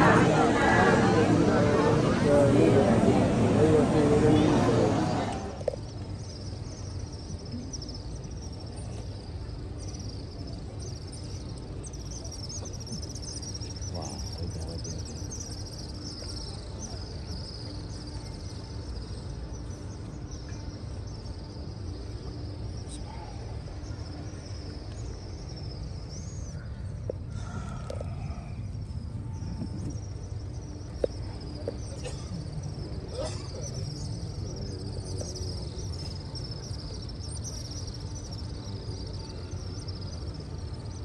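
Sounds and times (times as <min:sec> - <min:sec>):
steady low rumble: 0:00.0 - 0:08.6.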